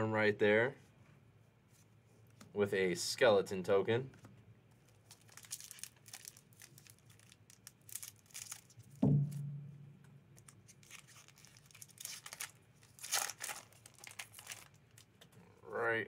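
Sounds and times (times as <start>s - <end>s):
foil wrapper crinkling and tearing: 4.9s - 9.0s, 10.6s - 15.1s
dull thump: 9.0s - 9.9s.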